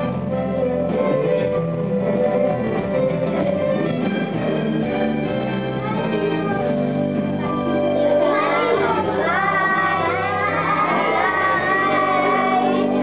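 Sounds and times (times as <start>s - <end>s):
instrumental accompaniment: 0.0s - 13.0s
children singing: 8.0s - 13.0s.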